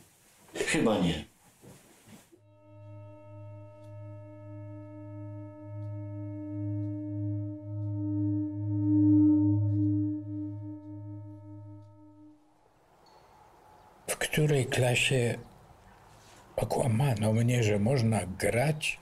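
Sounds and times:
ringing drone with pulsing wobble: 2.4s - 12.4s.

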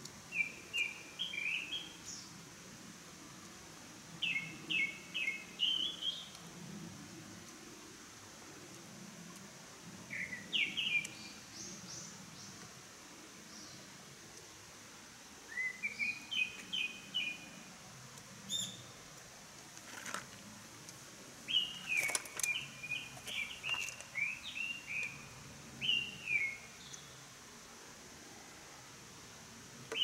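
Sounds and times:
songbird singing: 0.3s - 2.4s, 4.2s - 6.5s, 10.0s - 12.8s, 13.4s - 14.5s, 15.4s - 19.1s, 21.4s - 27.4s, 29.8s - 30.0s.

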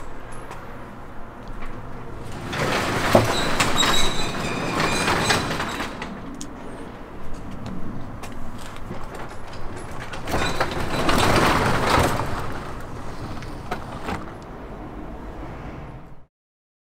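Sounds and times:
garage door rolling down: 1.0s - 14.9s
garage door clanks: 1.6s - 6.7s, 8.8s - 14.4s.

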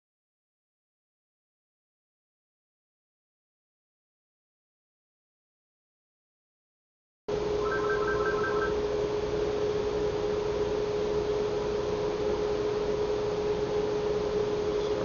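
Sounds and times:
electrical hum: 7.3s - 15.0s
short electronic beeps: 7.6s - 8.8s.

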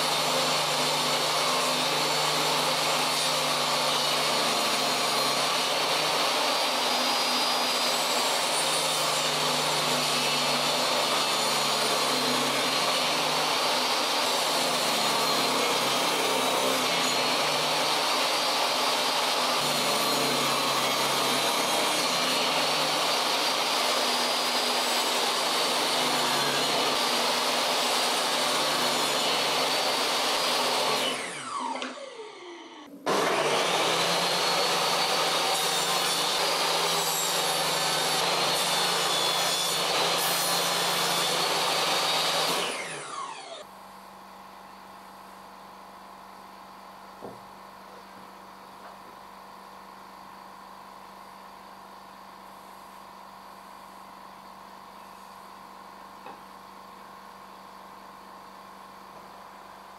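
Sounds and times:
table saw cutting wood: 0.0s - 43.7s
saw spinning down: 29.2s - 37.4s, 38.1s - 43.6s.

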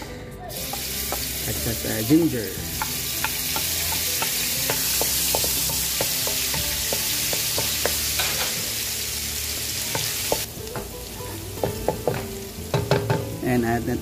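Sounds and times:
garlic sizzling in hot oil: 0.5s - 14.0s
spatula tapping and scraping a wok: 0.7s - 1.4s, 2.7s - 8.6s, 9.9s - 10.9s, 11.6s - 13.4s.

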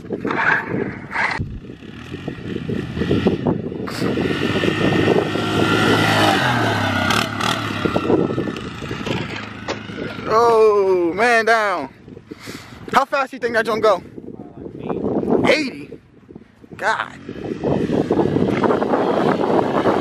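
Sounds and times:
quad bike engine running: 0.0s - 11.8s, 16.4s - 20.0s.

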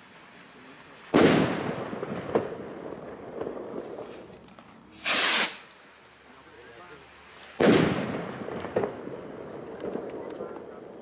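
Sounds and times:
rolling echo with crackles: 0.1s - 4.9s, 5.6s - 11.0s
firework rocket bang: 1.1s - 4.3s, 5.0s - 6.0s, 7.4s - 10.3s
rocket launching whoosh: 5.0s - 5.9s, 7.6s - 8.9s.

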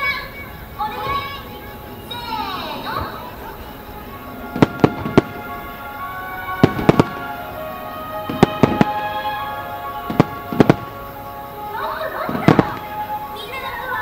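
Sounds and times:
background music with held notes: 0.0s - 14.0s
firework shells bursting: 2.8s - 13.6s.

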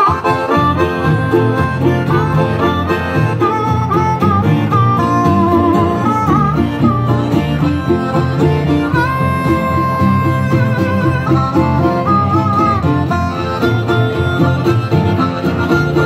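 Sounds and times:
harmonica melody: 0.0s - 16.0s
plucked upright bass: 0.0s - 16.0s
strummed acoustic guitars: 0.0s - 16.0s.

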